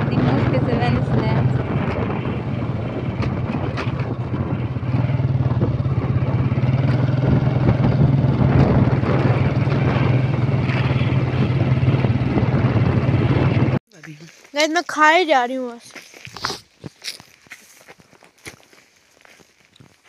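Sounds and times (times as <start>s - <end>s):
vehicle engine running: 0.0s - 13.8s.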